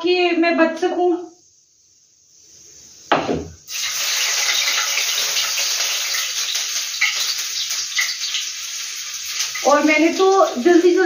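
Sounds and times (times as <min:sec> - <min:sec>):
onions sizzling in hot fat: 0:00.4 - 0:11.0
onions thudding into wok: 0:03.1 - 0:04.9.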